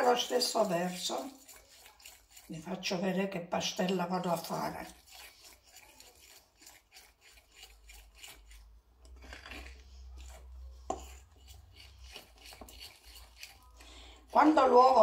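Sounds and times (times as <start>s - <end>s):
fork scraping in ceramic bowl: 0.0s - 15.0s.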